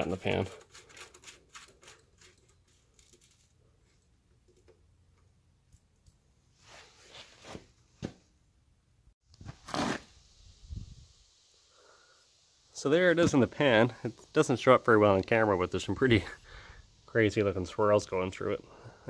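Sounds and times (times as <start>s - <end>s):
rustling: 0.2s - 4.1s
faint clicks and scrapes: 0.4s - 6.2s.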